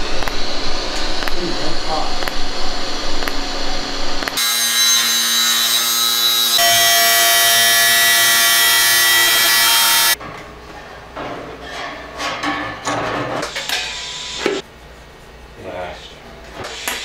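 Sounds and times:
angle grinder cutting steel: 0:00.0 - 0:10.2.

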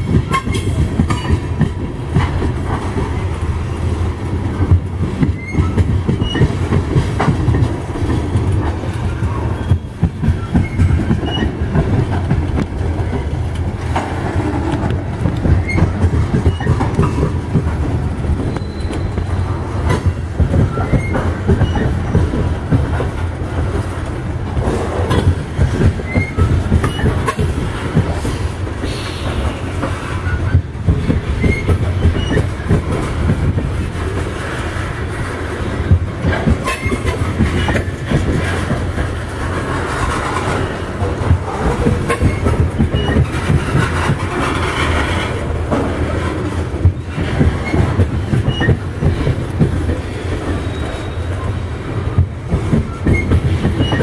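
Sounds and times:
train wheels rumbling on rail: 0:00.0 - 0:54.0
wheels clacking over rail joints: 0:00.0 - 0:54.0
wheel squeals: 0:05.3 - 0:06.6, 0:09.1 - 0:11.7, 0:15.6 - 0:17.2, 0:18.4 - 0:19.6, 0:20.7 - 0:22.0, 0:26.0 - 0:27.4, 0:31.4 - 0:32.6, 0:36.6 - 0:38.0, 0:42.1 - 0:45.2, 0:47.6 - 0:49.3, 0:50.1 - 0:51.6, 0:52.7 - 0:54.0.

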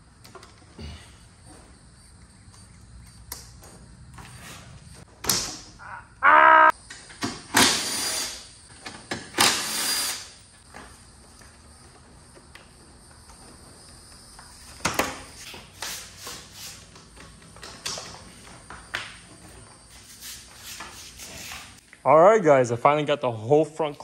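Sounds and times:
power tool whirring: 0:07.6 - 0:08.5, 0:09.2 - 0:10.4.

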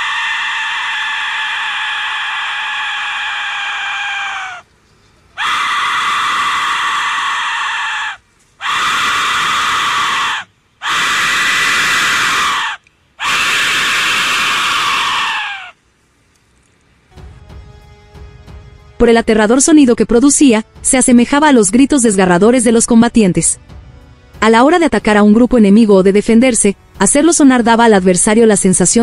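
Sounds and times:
harsh scream-like whistle blasts: 0:05.4 - 0:15.8.

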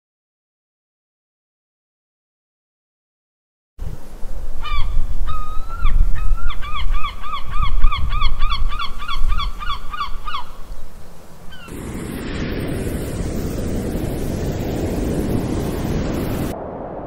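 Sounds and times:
steady low rumble: 0:11.7 - 0:17.0.

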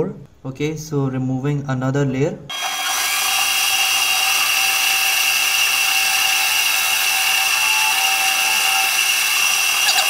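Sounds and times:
lathe motor whining: 0:02.5 - 0:10.0.

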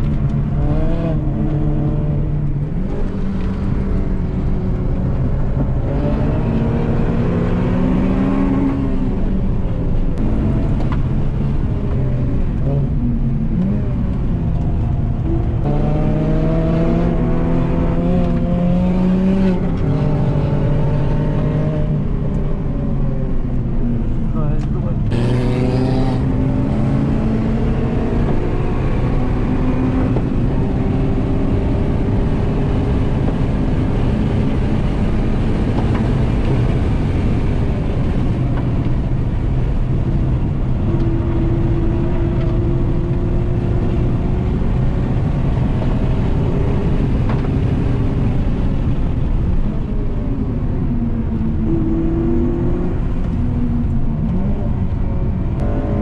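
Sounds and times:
car engine accelerating and slowing: 0:00.0 - 0:56.0
road noise rushing: 0:00.0 - 0:56.0.

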